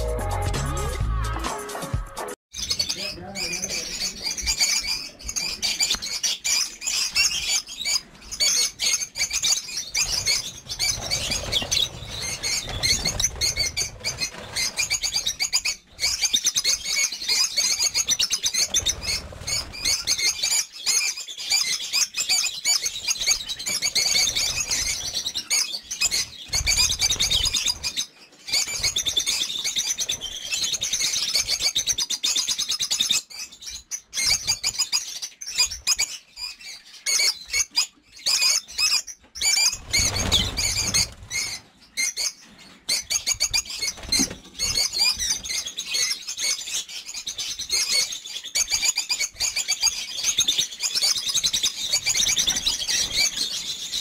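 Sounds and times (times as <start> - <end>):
lovebirds chattering: 2.6 - 54.0
wings fluttering: 3.4 - 20.6, 22.9 - 31.7, 39.4 - 46.2, 49.4 - 54.0.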